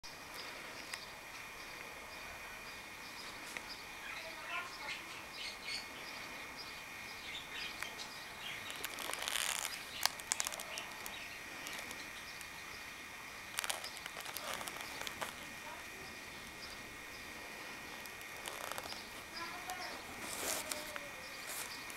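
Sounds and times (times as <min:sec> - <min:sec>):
small birds chirping: 0:00.1 - 0:21.9
paper rustle: 0:08.6 - 0:12.0, 0:13.5 - 0:15.5, 0:18.1 - 0:21.9.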